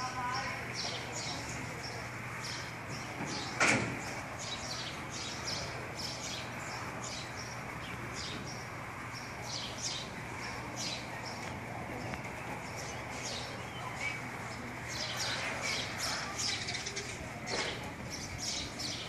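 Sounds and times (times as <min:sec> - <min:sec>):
birds chirping: 0:00.0 - 0:19.0.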